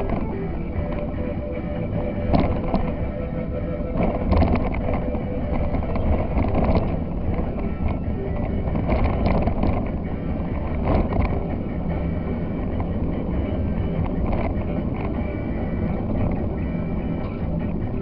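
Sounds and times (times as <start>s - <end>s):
van engine and tyre drone: 0.0s - 18.0s
knocks and rattles: 3.8s - 13.0s.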